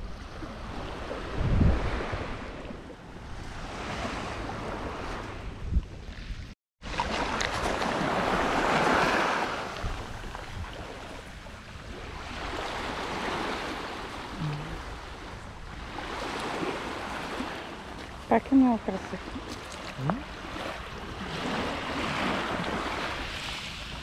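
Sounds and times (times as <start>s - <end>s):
sea waves washing up beach: 6.8s - 24.0s.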